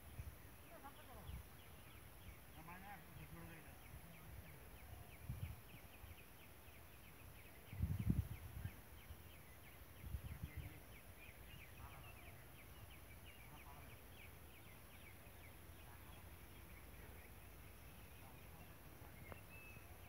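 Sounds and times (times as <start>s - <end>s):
low rumbles on microphone: 7.6s - 9.1s.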